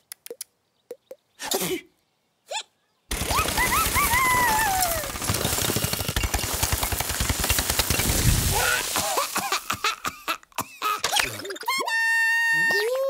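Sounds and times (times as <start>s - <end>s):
small clicks: 0.0s - 1.1s
cartoon hen yelping and wailing: 3.3s - 5.1s, 11.6s - 13.0s
rockslide rumbling clatter: 4.5s - 9.7s.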